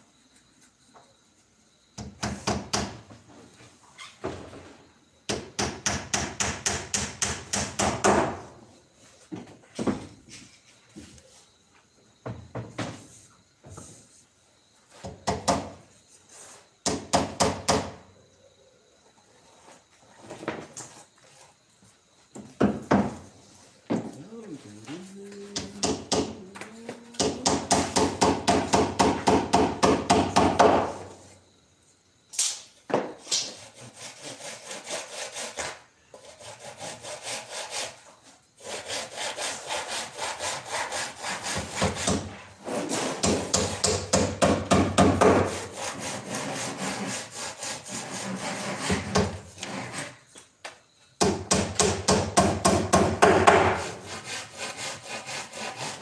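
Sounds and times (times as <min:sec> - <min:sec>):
handsaw cutting wood: 0:33.5 - 0:43.9, 0:45.2 - 0:50.2, 0:53.5 - 0:56.0.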